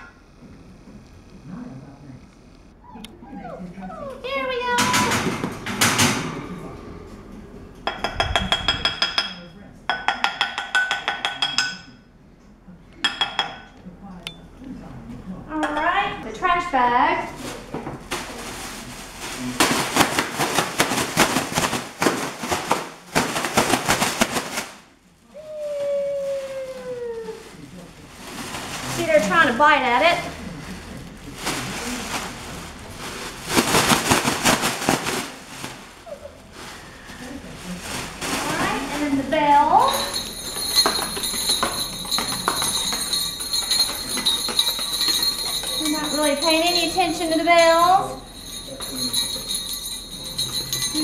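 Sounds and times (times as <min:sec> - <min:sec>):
wavering whine: 0:04.4 - 0:09.9
plastic bag crackling and crinkling: 0:17.3 - 0:47.4
jingle bells shaken: 0:38.4 - 0:51.0.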